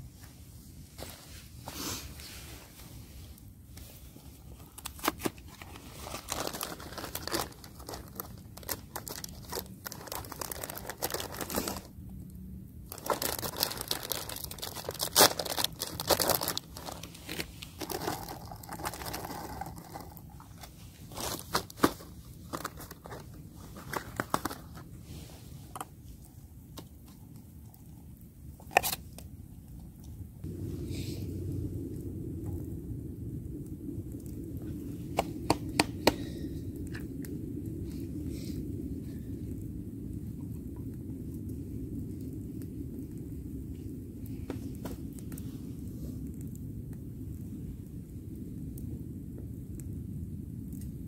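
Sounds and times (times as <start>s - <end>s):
cardboard packaging crinkling and tearing: 4.7s - 12.0s, 12.9s - 25.0s, 28.7s - 29.1s.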